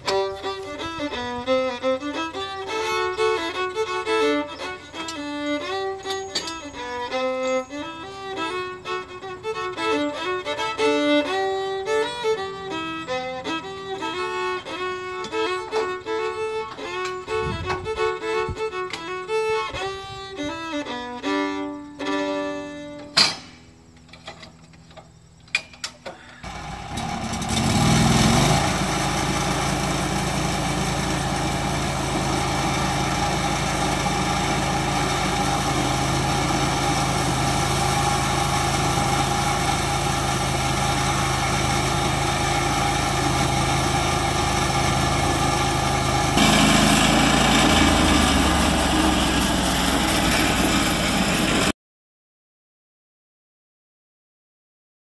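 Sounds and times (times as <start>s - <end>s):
sawmill engine running: 0.0s - 23.0s, 26.4s - 51.7s
violin music: 0.0s - 23.2s, 28.9s - 51.5s
band blade cutting log: 46.4s - 51.6s.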